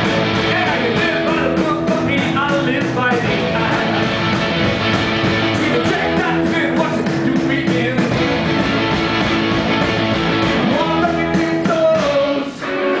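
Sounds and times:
drums playing steady beat: 0.0 - 12.6
electric guitars: 0.0 - 13.0
man singing into microphone: 0.4 - 4.0, 5.5 - 8.2, 10.6 - 13.0.

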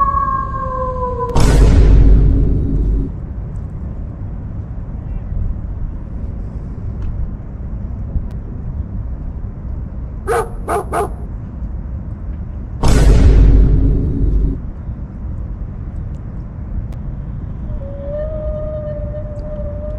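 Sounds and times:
low rushing noise: 0.0 - 19.9
loud burst: 1.3 - 3.2, 12.8 - 14.6
dog barking: 10.3 - 11.3.

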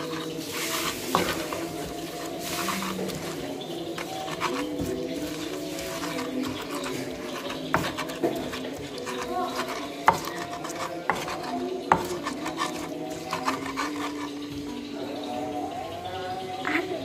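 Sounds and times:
stone pestle grinding in mortar: 0.0 - 14.8
pestle knocking on mortar: 1.1 - 2.2, 2.8 - 14.3.

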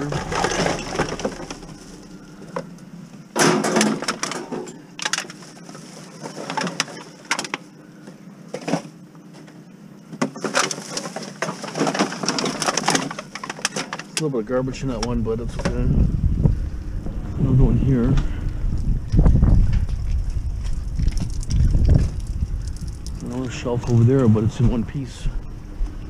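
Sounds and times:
plastic bags crinkling: 0.0 - 2.2
metal shelving clattering: 0.0 - 2.6, 3.4 - 7.5.

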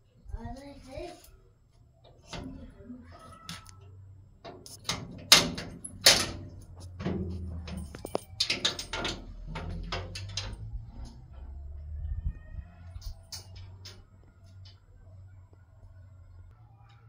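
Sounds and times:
metal door rattling: 4.4 - 11.8
metal lock and latch clicking: 4.5 - 10.6.

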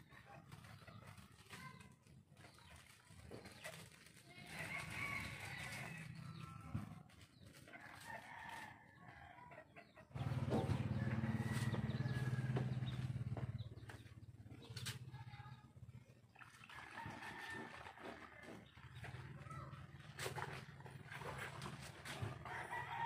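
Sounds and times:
rooster crowing: 10.9 - 12.9, 22.4 - 23.0.

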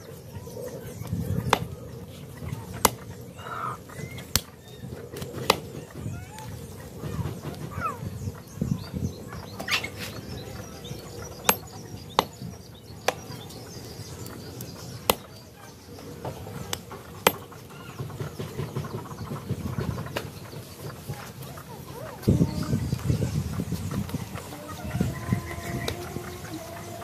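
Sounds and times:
knife chopping on wooden block: 5.4 - 5.7.

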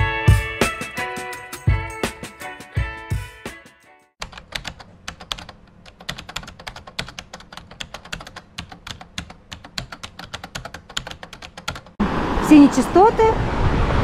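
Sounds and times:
rapid sharp clicking: 4.2 - 12.0.

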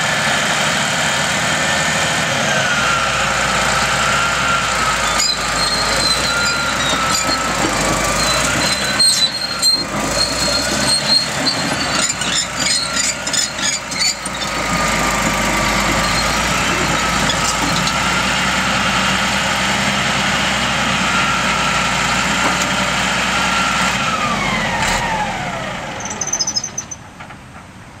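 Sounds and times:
bulldozer diesel engine: 0.0 - 28.0
clanking and rattling: 5.0 - 18.1.

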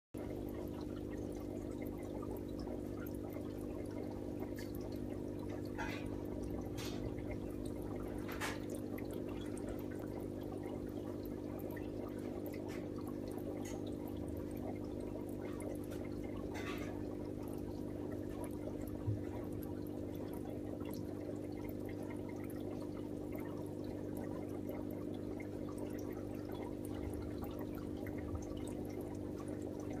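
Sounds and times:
water trickling in a fish tank: 0.2 - 30.0.

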